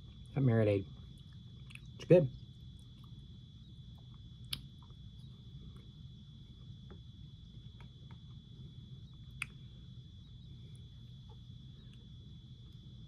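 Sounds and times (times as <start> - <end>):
low room hum: 0.0 - 13.0
thin high whine: 5.0 - 13.0.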